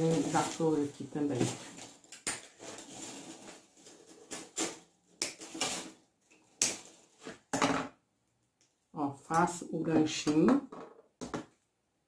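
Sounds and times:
wire rustling: 0.0 - 4.8.

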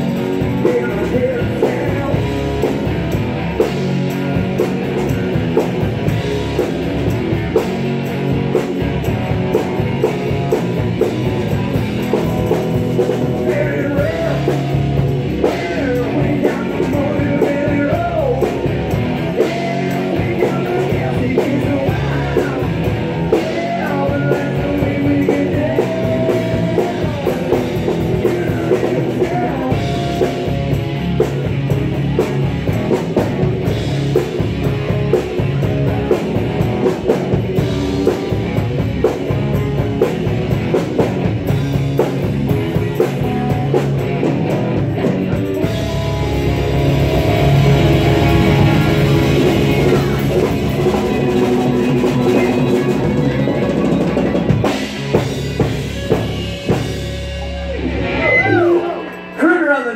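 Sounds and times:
live country-rock band playing: 0.0 - 59.9.

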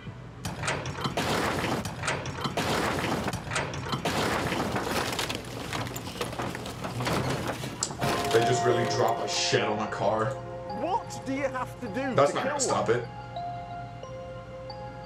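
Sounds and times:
shed crashing and splintering: 0.5 - 9.3.

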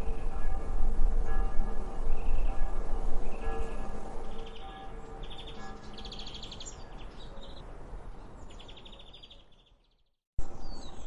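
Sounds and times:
small birds trilling and chirping: 3.2 - 11.0.

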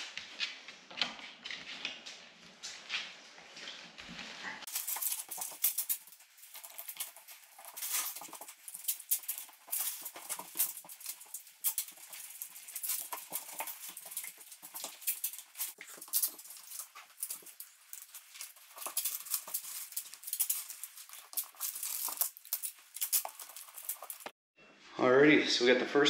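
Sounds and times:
dog claws clicking on floor: 4.7 - 24.3.

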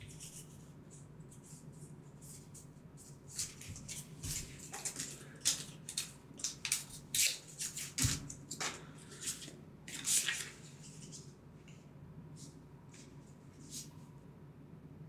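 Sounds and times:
cards sliding and rustling: 2.3 - 11.3.

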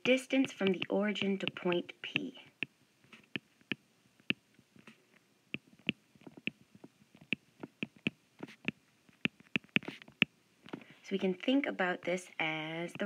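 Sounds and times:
stylus clicking on tablet screen: 0.1 - 5.0, 5.6 - 6.6, 7.2 - 10.3.

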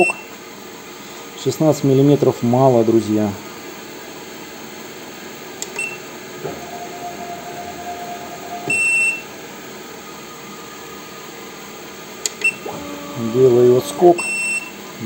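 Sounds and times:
leadscrew motor whine: 5.9 - 15.0
lathe running: 6.0 - 15.0.

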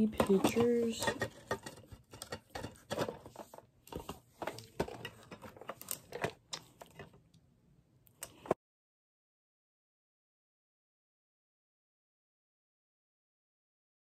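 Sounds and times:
picture frames clicking and tapping: 0.0 - 7.2.

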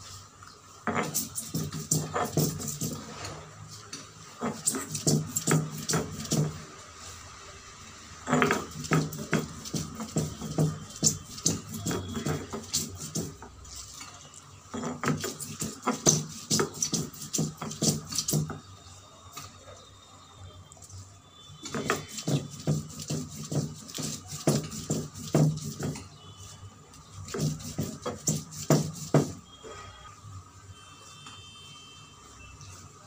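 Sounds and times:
stone roller grinding on stone slab: 0.8 - 3.4, 4.4 - 6.6, 8.2 - 14.0, 14.7 - 18.6, 21.7 - 26.0, 27.2 - 29.4.

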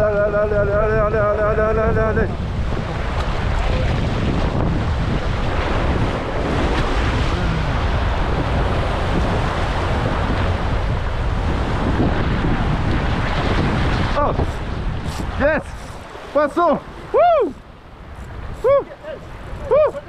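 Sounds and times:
breaking surf: 0.0 - 20.0
wind buffeting microphone: 0.0 - 20.0.

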